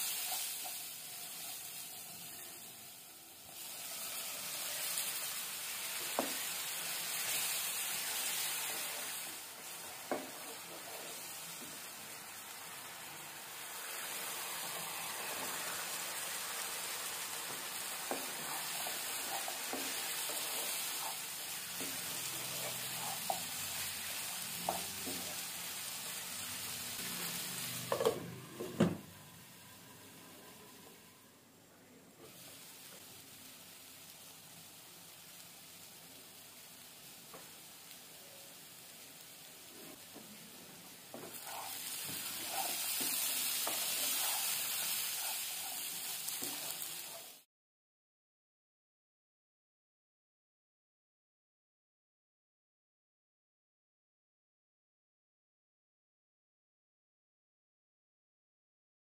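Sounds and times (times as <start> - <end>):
masala sizzling in a pan: 0.0 - 31.1, 32.2 - 47.5.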